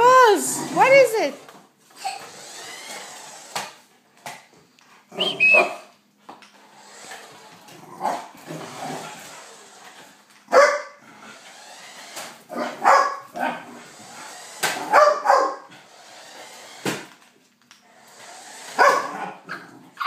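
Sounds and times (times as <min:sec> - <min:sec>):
puppy barking and yipping: 0:10.5 - 0:10.9, 0:12.6 - 0:13.3, 0:14.8 - 0:15.7, 0:18.8 - 0:20.0.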